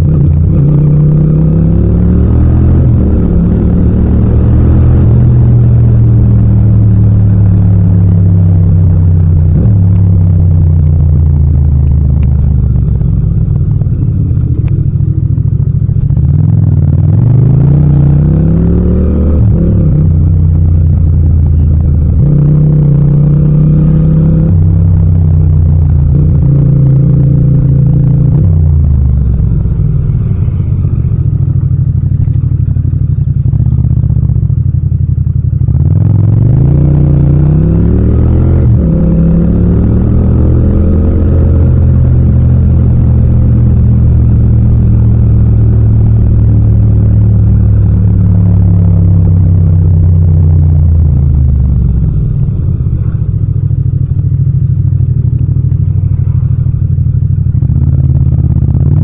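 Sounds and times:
motorcycle engine accelerating: 0.0 - 59.0.

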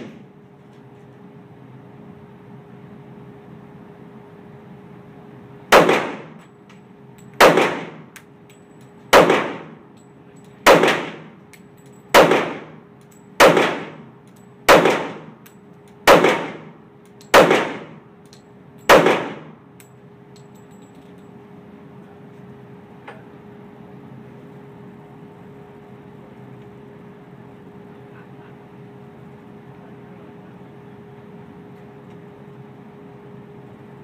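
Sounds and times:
steady hum: 0.0 - 34.0
pistol shots echoing indoors: 5.8 - 6.4, 7.4 - 8.1, 9.1 - 9.8, 10.6 - 11.3, 12.1 - 12.8, 13.4 - 15.4, 16.0 - 18.0, 18.9 - 19.6.

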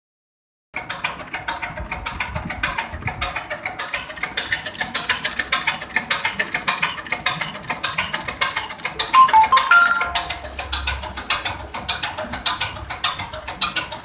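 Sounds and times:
short beeps: 9.2 - 10.5.

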